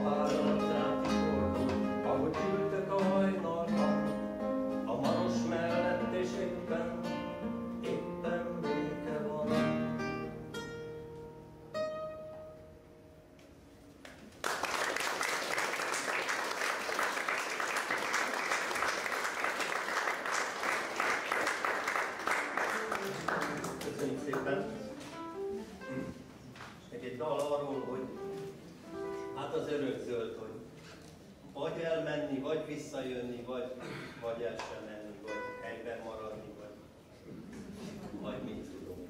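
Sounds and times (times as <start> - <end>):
acoustic guitar: 0.0 - 14.0, 21.5 - 31.5, 34.4 - 39.0
audience applause: 14.3 - 24.7.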